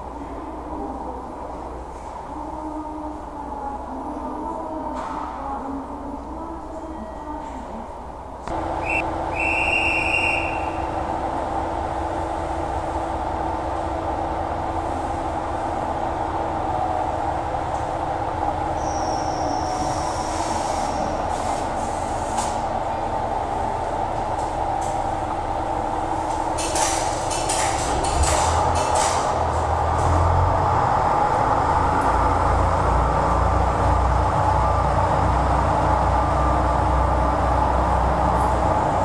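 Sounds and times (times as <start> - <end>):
diesel engine idling: 8.5 - 19.6, 21.1 - 39.0.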